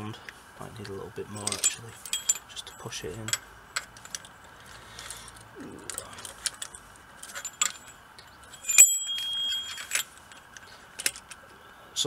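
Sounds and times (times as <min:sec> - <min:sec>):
metallic clicks and clinks of tools: 0:00.8 - 0:04.4, 0:05.3 - 0:11.5
ringing metal clink: 0:01.3 - 0:03.5, 0:07.3 - 0:10.1.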